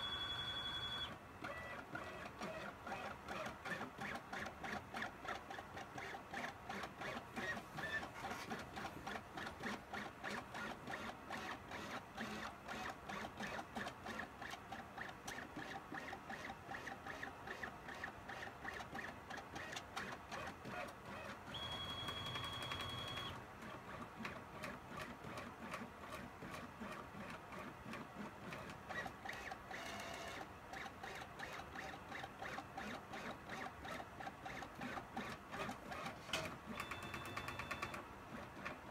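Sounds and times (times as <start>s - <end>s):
plotter motors stuttering: 0.8s - 38.7s.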